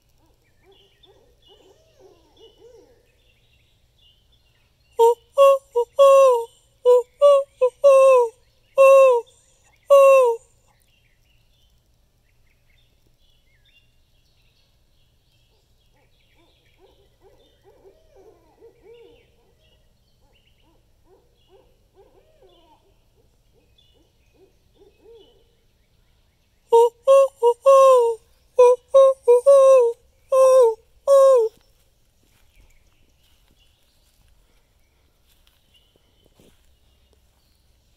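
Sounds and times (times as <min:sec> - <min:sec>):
nearby owl hoots: 0:05.0 - 0:10.5, 0:26.7 - 0:31.6
distant owl hooting: 0:26.7 - 0:31.5.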